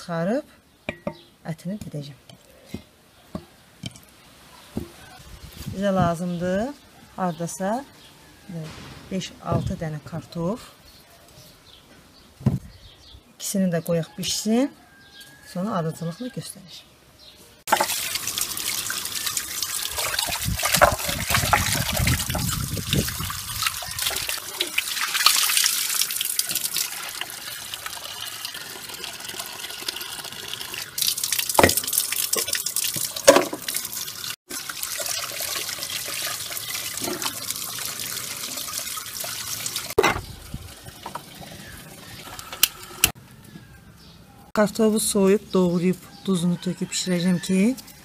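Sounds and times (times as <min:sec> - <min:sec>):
metal pot knocks: 0:00.9 - 0:01.3
tap water splashing into pot: 0:17.7 - 0:40.2.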